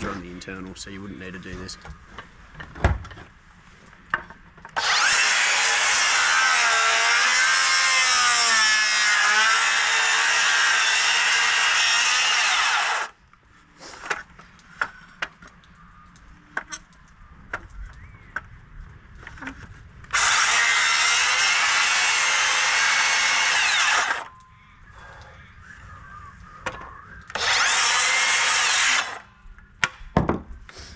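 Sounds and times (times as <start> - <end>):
power saw cutting timber: 4.8 - 13.2, 20.1 - 24.3, 27.3 - 29.3.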